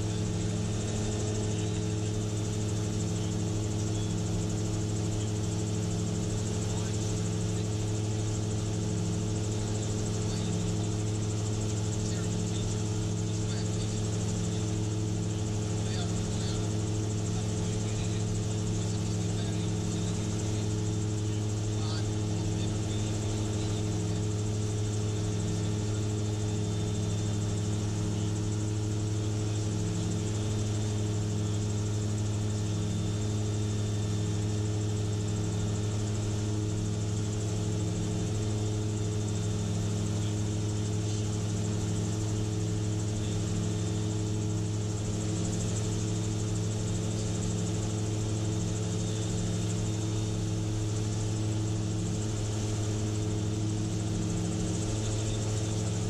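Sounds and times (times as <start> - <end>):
engine and propeller drone: 0.0 - 56.0.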